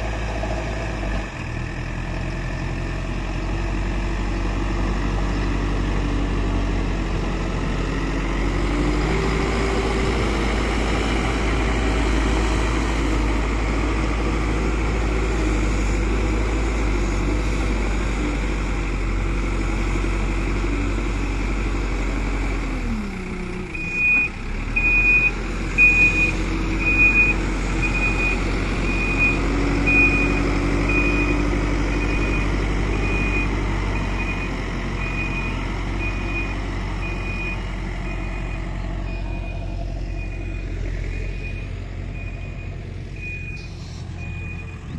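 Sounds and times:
diesel engine revving: 0.0s - 44.9s
reversing alarm beeps: 23.8s - 44.9s.

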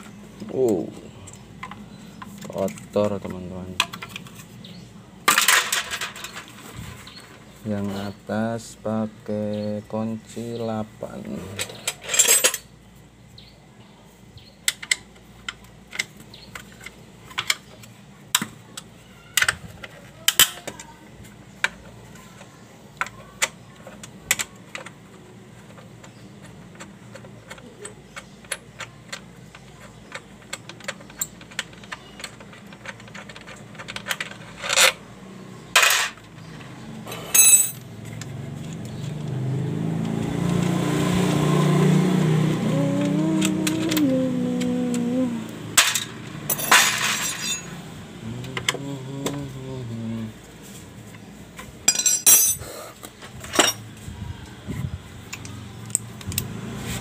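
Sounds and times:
spanner clicking on bolts: 23.0s - 35.0s
engine hum: 23.2s - 57.0s
metal clanks: 37.1s - 37.9s, 45.8s - 47.8s, 51.9s - 52.7s.

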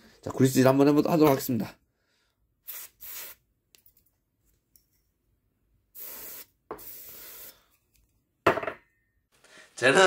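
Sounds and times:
short bursts of hissing: 2.6s - 3.4s, 6.0s - 7.7s.

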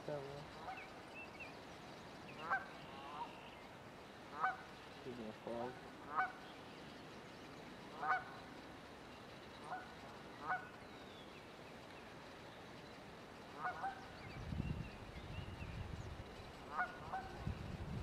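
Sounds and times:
large bird calling: 2.2s - 4.8s.

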